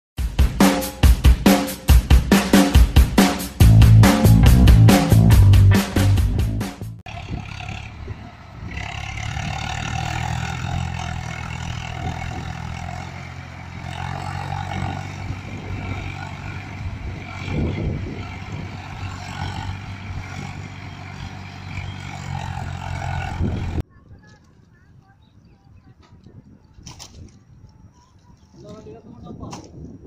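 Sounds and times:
tractor diesel engine under load: 7.0s - 23.9s.

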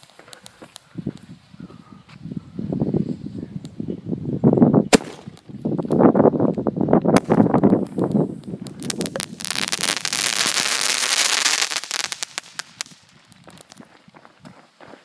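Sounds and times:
firework crackling: 0.0s - 0.9s, 4.9s - 5.8s, 7.2s - 13.9s.

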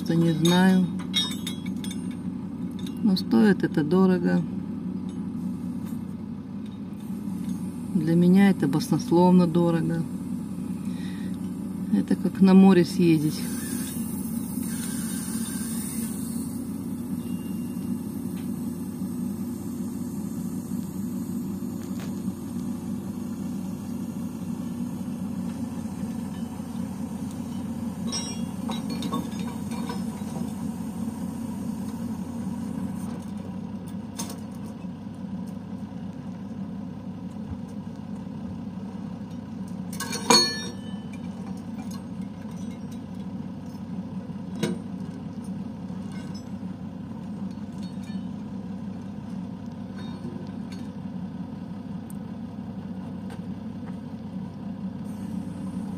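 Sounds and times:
truck engine running: 0.0s - 55.9s
lifting chains chinking: 0.2s - 3.1s, 27.5s - 30.2s, 40.0s - 43.1s
loud metal clank: 40.0s - 41.2s.

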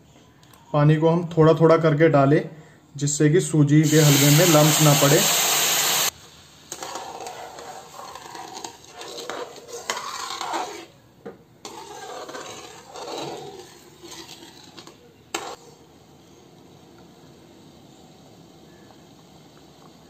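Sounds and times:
metal ladle scraping metal pan: 6.7s - 11.0s, 11.6s - 15.8s.

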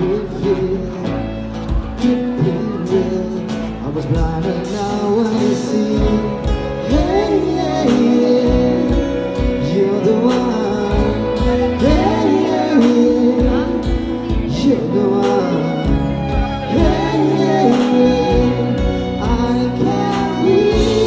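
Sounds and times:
live pop band: 0.0s - 21.0s
woman singing into microphone: 5.7s - 21.0s.

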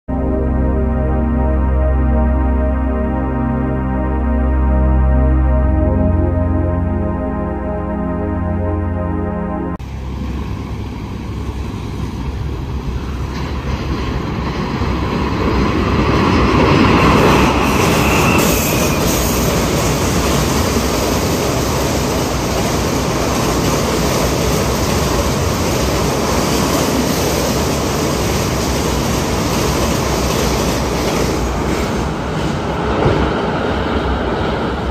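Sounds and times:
train wheels rumbling over bridge: 9.8s - 34.9s.

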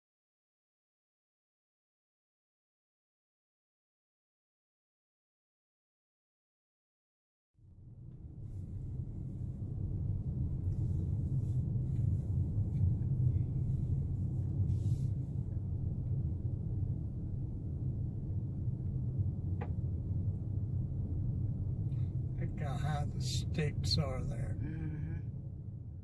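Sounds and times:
car tyre and engine rumble: 7.6s - 26.0s.

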